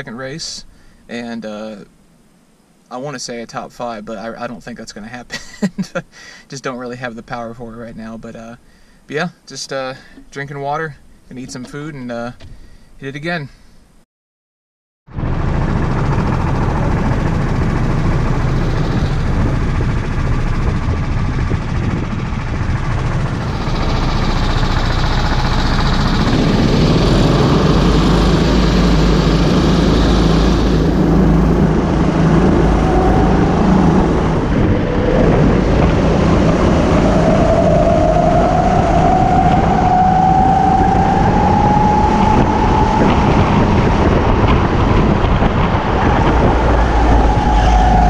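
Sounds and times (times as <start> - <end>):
go-kart engines running: 15.2 - 37.1.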